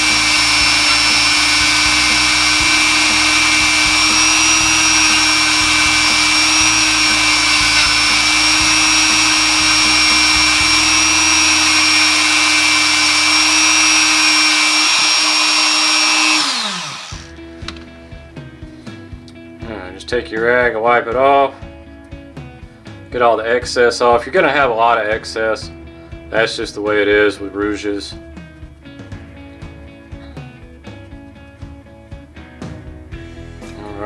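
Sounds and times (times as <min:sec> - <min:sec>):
rotary tool high whine: 0:00.0 - 0:17.3.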